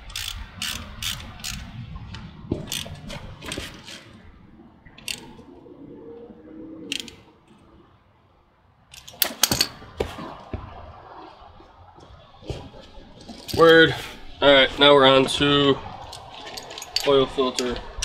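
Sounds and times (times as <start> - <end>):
metallic clicks of hand tools: 6.9 - 7.2, 8.9 - 9.7.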